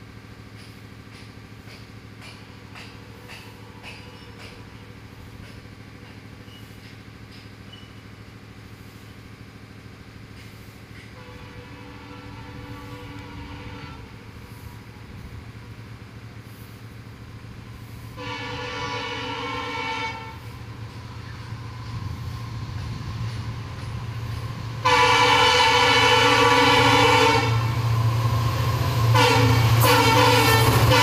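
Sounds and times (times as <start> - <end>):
diesel locomotive engine rumbling: 0.0 - 31.0
multi-tone air horn blasts: 11.2 - 14.6, 18.2 - 20.5, 24.8 - 27.7, 29.1 - 31.0.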